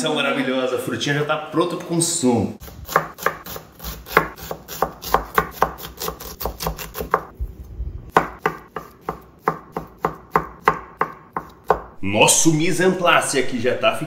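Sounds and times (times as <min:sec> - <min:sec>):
knife chopping on wooden board: 0:02.6 - 0:07.3, 0:08.1 - 0:12.0.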